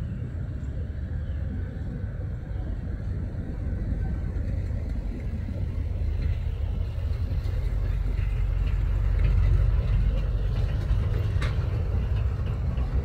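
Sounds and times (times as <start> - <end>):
diesel train rumbling: 0.0 - 13.0.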